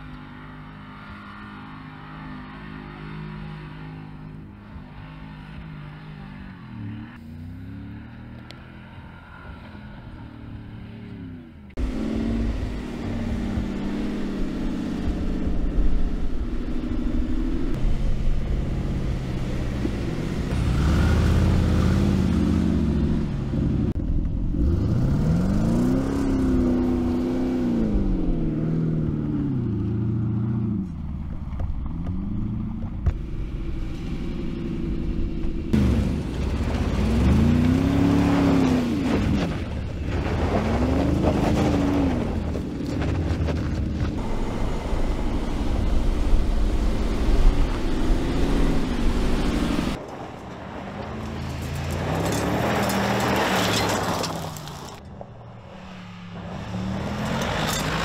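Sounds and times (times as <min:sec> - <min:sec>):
engine revving hard: 0:18.8 - 0:23.9.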